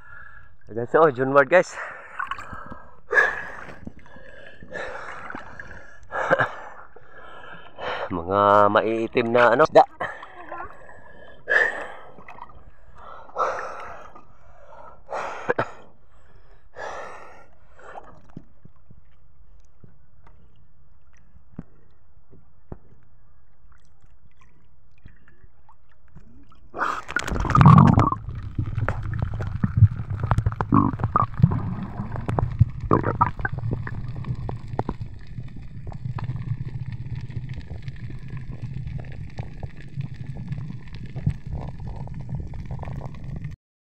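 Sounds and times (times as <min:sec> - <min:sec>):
swimmer breathing heavily: 0:01.7 - 0:08.1, 0:10.0 - 0:18.2
underwater rumbling and bubbling: 0:01.8 - 0:08.0, 0:09.1 - 0:14.5, 0:17.6 - 0:43.6
loud water splash: 0:26.8 - 0:34.0.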